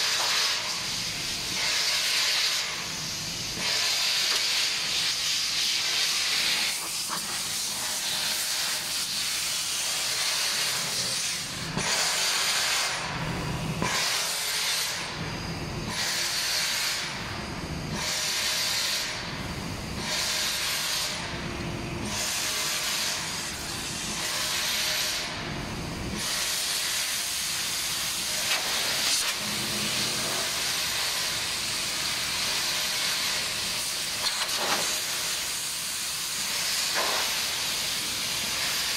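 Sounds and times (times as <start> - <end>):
compressed air hissing: 0.0 - 21.4, 22.0 - 25.5, 26.1 - 38.9.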